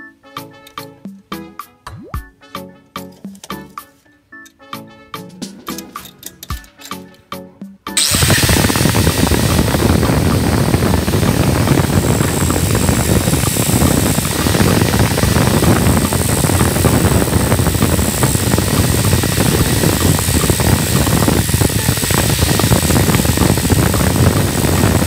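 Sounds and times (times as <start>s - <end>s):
power tool motor running: 8.0s - 25.0s.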